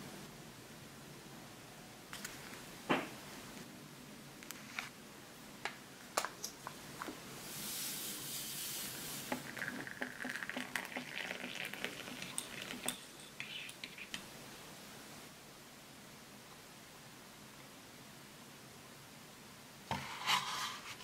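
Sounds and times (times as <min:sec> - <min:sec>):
water pouring into cup: 0:09.2 - 0:13.8
spoon clinking against cup: 0:11.9 - 0:13.9.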